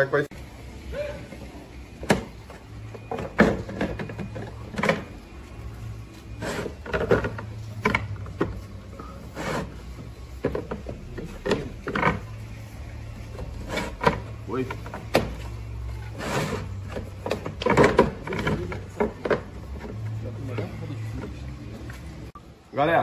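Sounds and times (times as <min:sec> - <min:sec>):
plastic pipe knocking and scraping: 0:09.4 - 0:12.3, 0:16.5 - 0:20.0.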